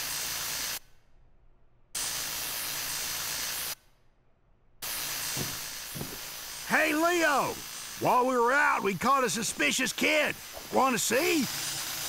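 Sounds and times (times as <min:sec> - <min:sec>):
loud hissing bursts: 0:02.0 - 0:03.8, 0:04.8 - 0:12.0.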